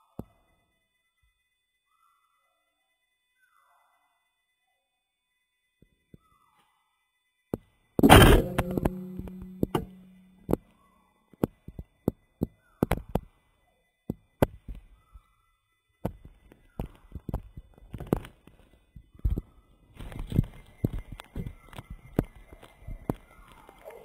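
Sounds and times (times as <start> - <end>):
dart gun ringing hum: 8.0 - 10.3.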